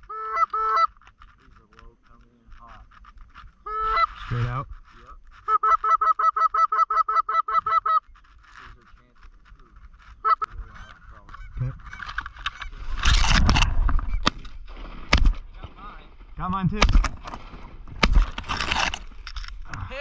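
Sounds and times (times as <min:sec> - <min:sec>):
goose calls clucking and honking: 0:00.0 - 0:01.0, 0:03.6 - 0:04.5, 0:05.4 - 0:08.1, 0:10.1 - 0:12.9.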